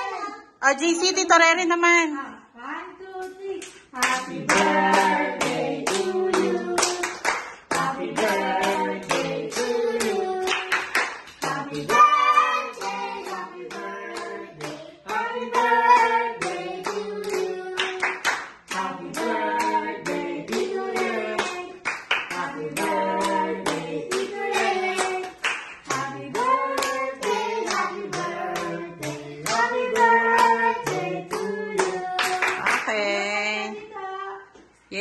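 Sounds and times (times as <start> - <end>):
voices singing: 3.0 - 34.7
hands clapping along: 3.2 - 33.0.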